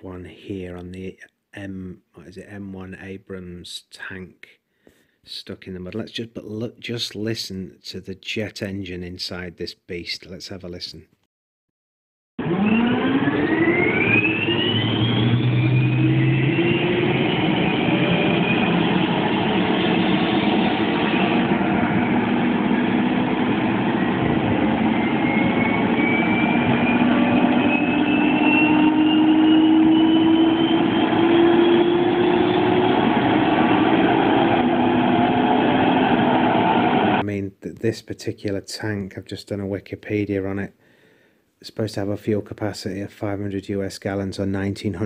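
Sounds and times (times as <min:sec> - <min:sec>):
gas-turbine engine whine: 0:12.4 - 0:37.2.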